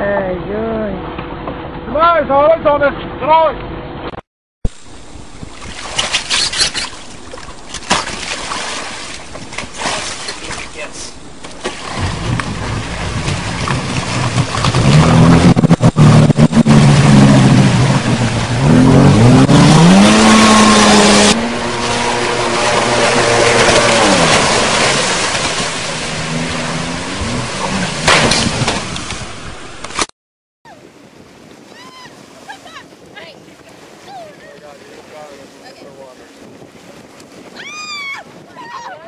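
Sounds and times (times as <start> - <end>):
jet ski engine revving: 12.0 - 29.4.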